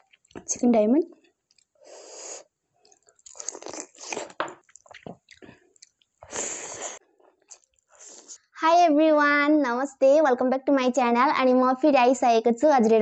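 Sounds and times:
close-miked chewing: 2.8 - 8.4.

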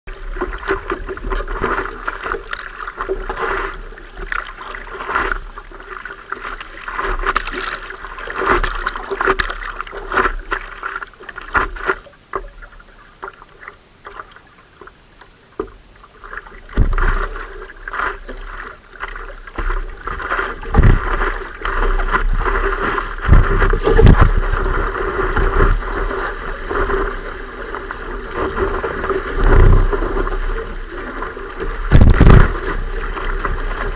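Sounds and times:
water splashing against surfboard: 0.1 - 33.9
wave rushing: 16.6 - 33.9.

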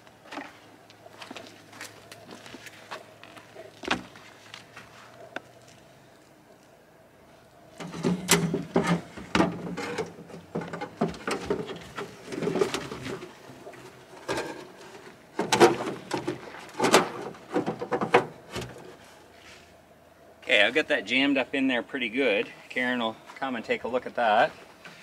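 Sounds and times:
plastic hose creaking and knocking: 7.8 - 18.9.

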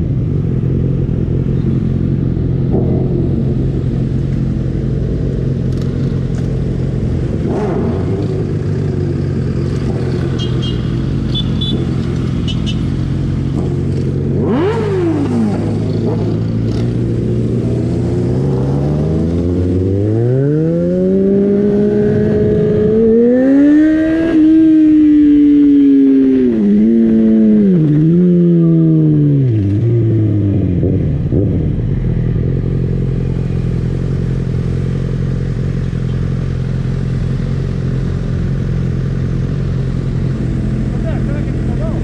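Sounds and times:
motorcycle engine accelerating: 0.0 - 42.0
other motorcycles idling: 32.0 - 42.0.

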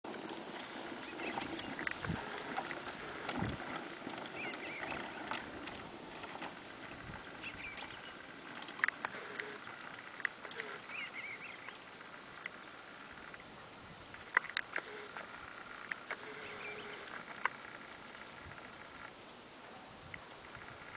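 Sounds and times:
horse hooves on dirt: 0.1 - 13.4
sharp clicks: 8.6 - 11.0.

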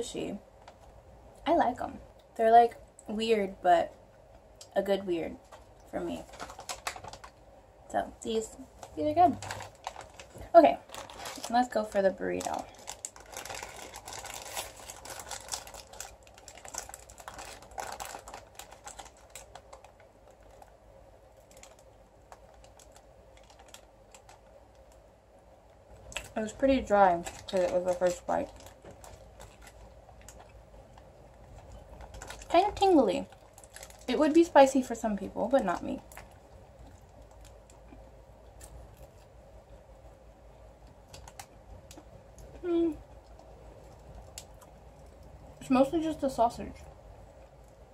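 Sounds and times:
low room hum: 0.0 - 47.9
paper wrapper crinkling: 5.3 - 7.4, 8.3 - 25.0, 26.0 - 37.9, 41.0 - 45.2.

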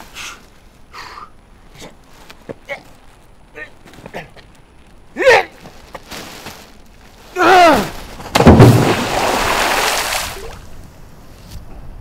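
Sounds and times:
man yelling: 5.2 - 5.6, 7.4 - 7.9
loud impact: 8.3 - 9.4
water splashing: 8.3 - 10.7.

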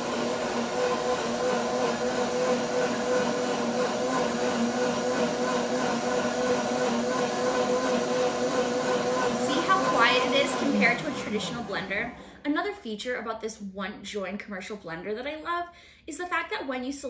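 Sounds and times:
blender motor whirring: 0.0 - 12.4.

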